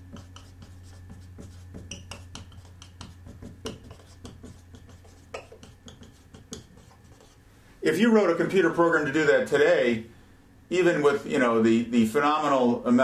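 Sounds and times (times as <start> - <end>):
marker writing on whiteboard: 0.0 - 7.4.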